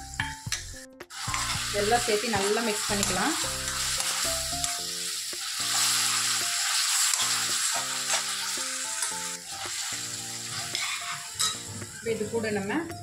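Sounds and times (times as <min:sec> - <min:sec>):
background music: 0:00.0 - 0:13.0
spatula stirring: 0:01.1 - 0:12.1
vegetables sizzling in a pan: 0:01.1 - 0:13.0.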